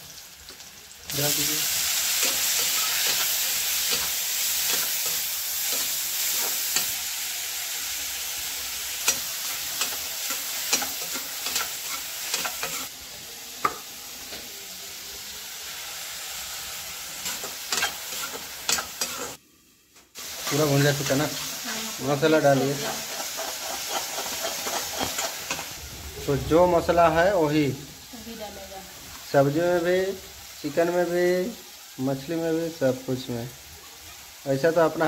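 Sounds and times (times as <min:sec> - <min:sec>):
food sizzling in hot oil: 0:00.0 - 0:35.0
metal spatula scraping and clinking pan: 0:22.9 - 0:25.8.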